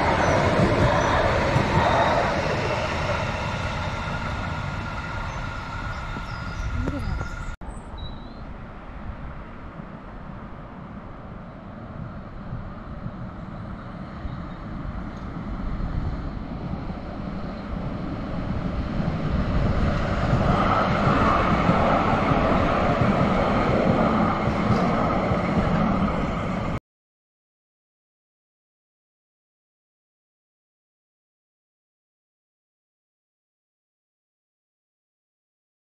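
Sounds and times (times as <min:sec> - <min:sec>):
tram rumbling past: 0:00.0 - 0:26.8.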